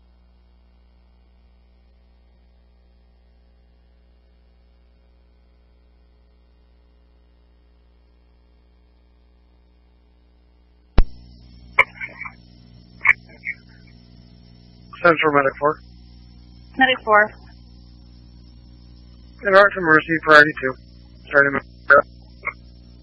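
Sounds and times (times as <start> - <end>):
radio keying click: 11.0 - 12.3
faint radio hum: 11.0 - 23.0
radio hiss: 11.0 - 23.0.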